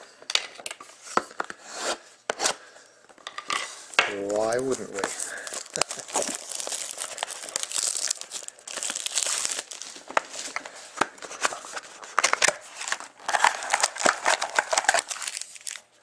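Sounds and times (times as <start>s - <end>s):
plastic wrapping crinkling and tearing: 3.9s - 16.0s.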